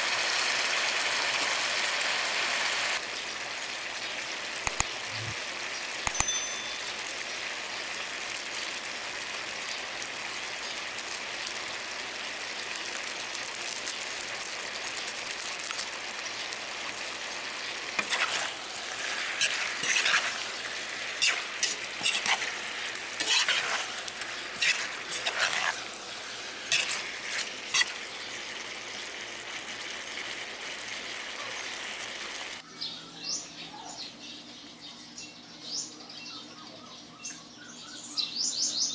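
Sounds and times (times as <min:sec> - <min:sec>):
pork sizzling in a wok: 0:00.0 - 0:32.6
metal spoon scraping pan: 0:18.0 - 0:25.9, 0:26.7 - 0:28.0.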